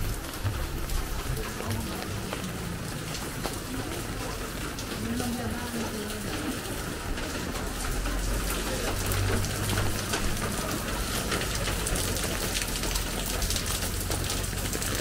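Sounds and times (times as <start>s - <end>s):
low rumble: 0.0s - 3.4s
steady rain falling: 0.0s - 15.0s.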